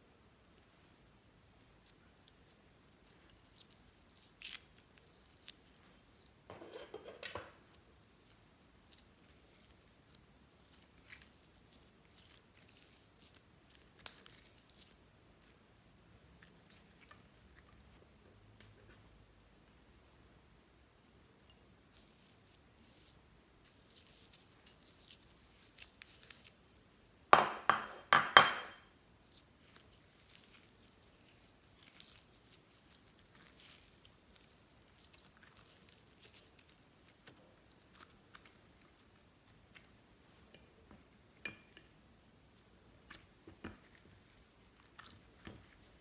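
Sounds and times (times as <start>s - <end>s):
sticky slime crackles: 1.4s - 6.4s, 7.7s - 15.6s, 21.9s - 26.7s, 29.2s - 40.0s.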